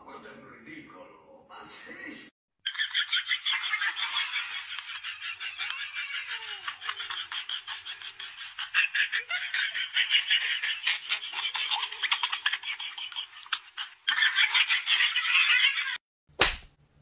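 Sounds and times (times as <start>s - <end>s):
person laughing: 3.6s - 16.0s.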